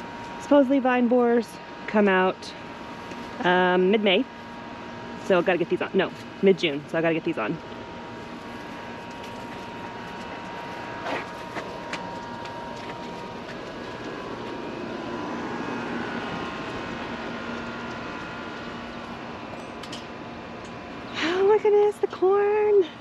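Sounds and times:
distant engine drone: 0:00.0 - 0:23.0.

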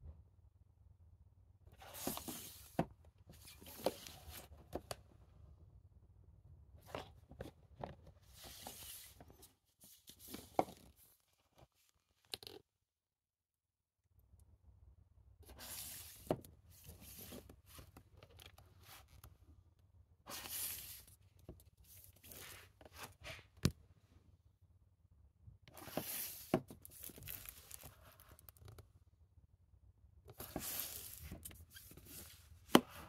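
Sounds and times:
plastic cases rustling and scraping: 0:01.7 - 0:05.0, 0:06.8 - 0:11.8, 0:15.4 - 0:19.3, 0:20.3 - 0:23.7, 0:25.7 - 0:28.8, 0:30.3 - 0:33.0.

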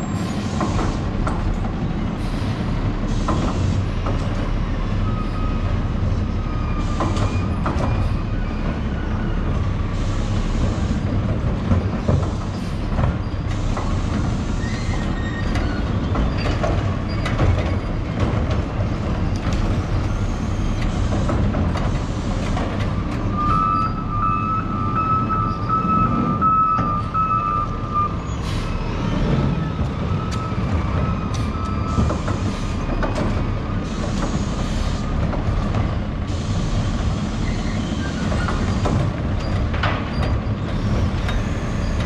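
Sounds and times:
knocks and rattles: 0:15.0 - 0:20.1, 0:38.2 - 0:41.4.

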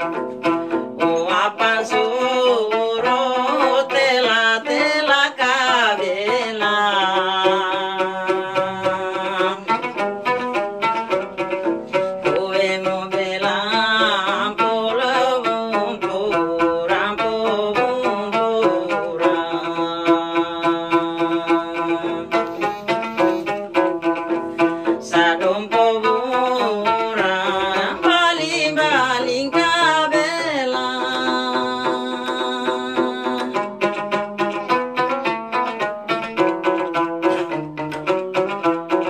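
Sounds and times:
plucked lute notes: 0:00.0 - 0:39.0
woman singing: 0:01.0 - 0:09.8, 0:12.3 - 0:22.3, 0:24.9 - 0:33.8.

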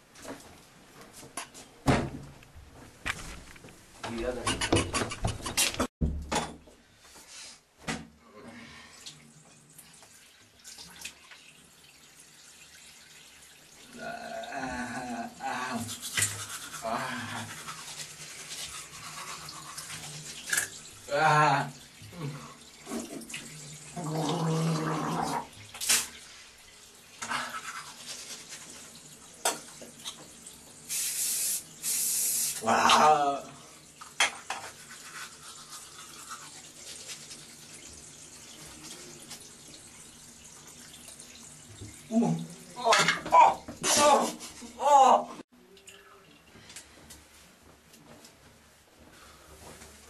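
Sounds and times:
tap water running: 0:09.0 - 0:44.7
toothbrush scrubbing teeth: 0:15.3 - 0:20.8, 0:27.2 - 0:28.8, 0:34.0 - 0:37.8.

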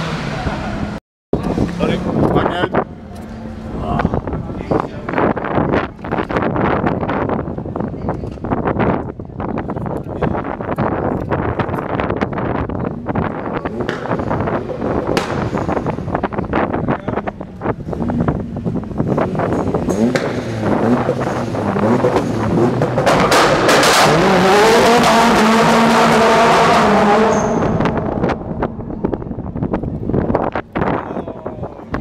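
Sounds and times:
wind buffeting microphone: 0:01.4 - 0:23.7, 0:27.6 - 0:32.0
exhaust cracks: 0:01.4 - 0:31.0
car engine revving: 0:11.8 - 0:30.6.

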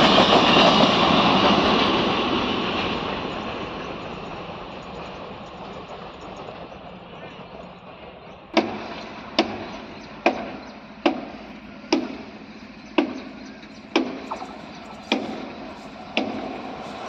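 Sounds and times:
sharp heavy knocks: 0:08.6 - 0:12.4, 0:13.0 - 0:13.3, 0:13.9 - 0:16.7.

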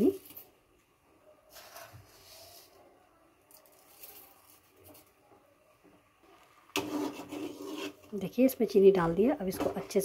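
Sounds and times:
metal ladle scraping in pot: 0:06.7 - 0:08.2.

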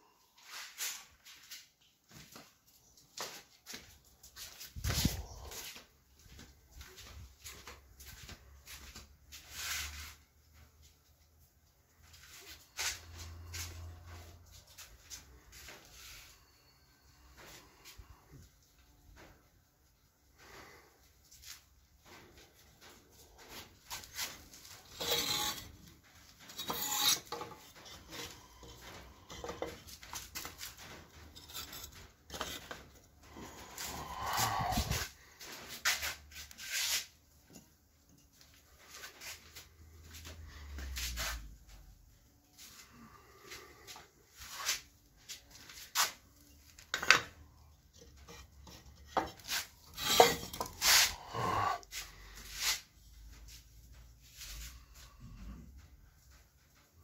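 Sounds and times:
bricks scraping on concrete floor: 0:24.0 - 0:25.9, 0:26.5 - 0:35.1, 0:46.8 - 0:47.4, 0:48.0 - 0:52.8
bricks scraping and knocking: 0:24.9 - 0:25.8, 0:26.5 - 0:30.6, 0:49.0 - 0:51.8.

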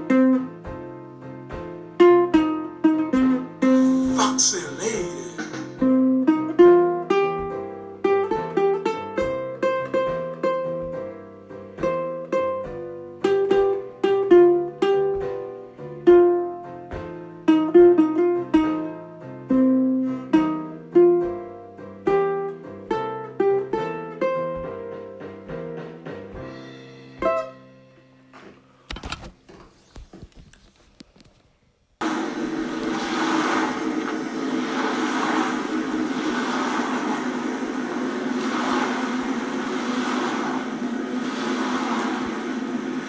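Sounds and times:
plucked string instrument melody: 0:00.0 - 0:27.9.

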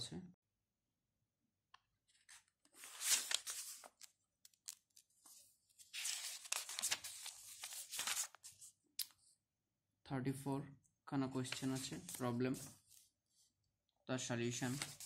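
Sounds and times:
book pages leafed through: 0:02.1 - 0:08.7, 0:14.6 - 0:15.0.

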